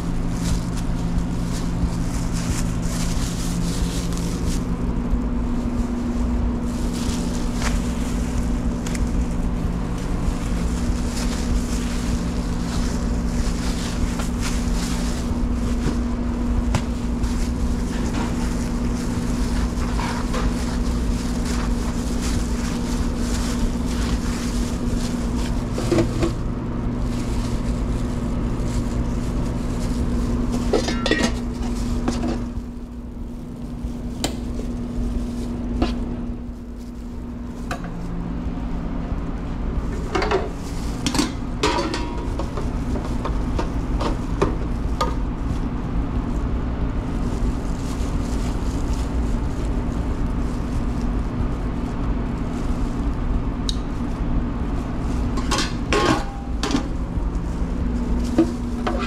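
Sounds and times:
kitchen equipment hum: 0.0s - 59.0s
utensils clinking on metal pans: 30.5s - 32.4s, 40.0s - 42.6s, 55.3s - 56.9s, 58.3s - 59.0s.

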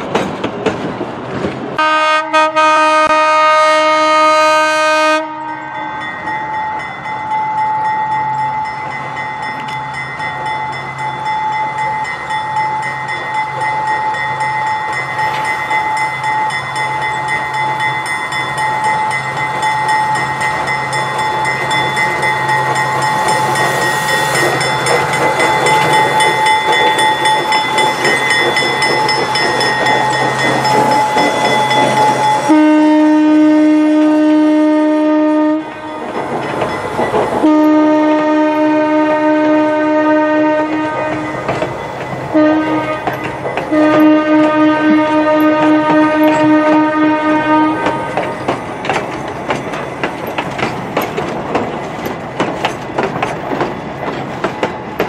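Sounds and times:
train wheels clattering over rails: 0.0s - 1.8s, 11.8s - 32.8s, 35.8s - 55.0s
locomotive running: 0.0s - 55.0s
locomotive horn blasts: 1.8s - 6.0s, 32.4s - 36.0s, 37.4s - 41.4s, 42.3s - 48.3s.

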